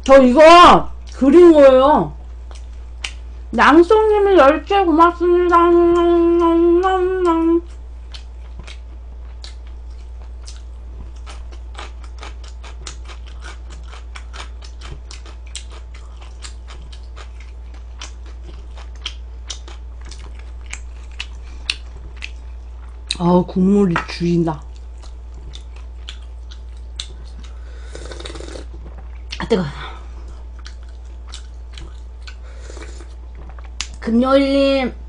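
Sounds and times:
wet chewing mouth clicks: 0:02.5 - 0:03.2, 0:07.2 - 0:23.2, 0:24.6 - 0:29.4, 0:30.6 - 0:34.0.

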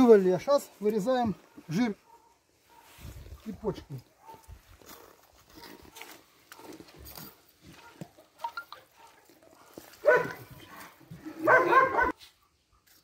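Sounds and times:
dog barking: 0:01.3 - 0:03.1, 0:04.1 - 0:08.2, 0:08.8 - 0:12.5.

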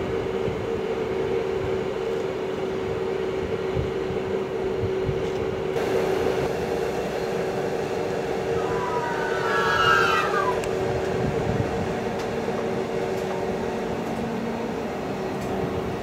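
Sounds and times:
electric train whine: 0:00.0 - 0:16.0
train pulling out: 0:00.0 - 0:16.0
track rumble: 0:03.8 - 0:16.0.

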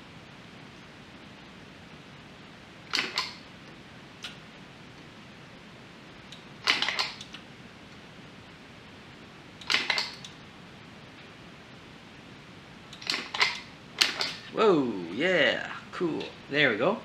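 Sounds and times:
spot welder snapping crackle: 0:02.8 - 0:04.4, 0:06.3 - 0:07.5, 0:09.6 - 0:10.4, 0:12.9 - 0:14.5.

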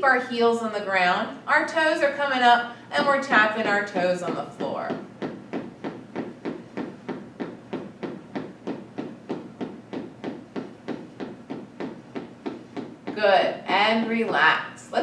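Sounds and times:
sneaker toes tapping on wood floor: 0:03.0 - 0:13.9.

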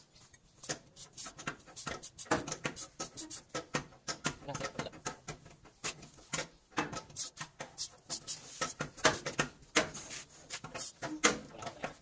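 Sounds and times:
sharp clicks and taps: 0:00.3 - 0:10.0
aerosol spray hissing: 0:01.0 - 0:03.5.

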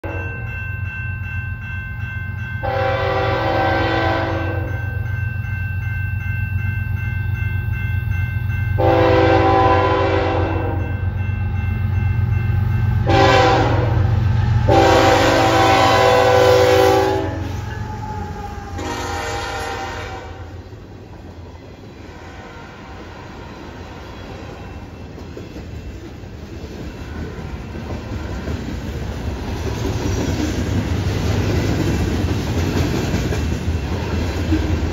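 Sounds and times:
crossing signal bell ringing: 0:00.0 - 0:20.7
locomotive horn blasts: 0:02.6 - 0:04.8, 0:08.8 - 0:10.9, 0:13.0 - 0:20.6
locomotive engines rumbling: 0:06.4 - 0:34.9.

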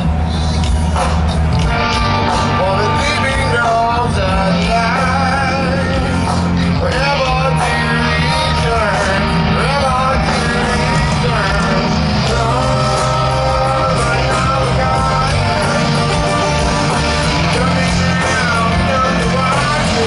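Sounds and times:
drums: 0:00.0 - 0:20.0
electric and acoustic guitars: 0:00.0 - 0:20.0
man singing: 0:02.5 - 0:20.0.

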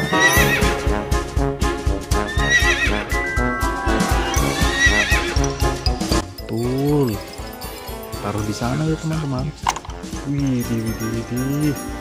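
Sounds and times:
horses whinnying: 0:00.0 - 0:00.9, 0:02.1 - 0:03.4, 0:04.2 - 0:05.8
music with a steady beat: 0:03.0 - 0:08.2.

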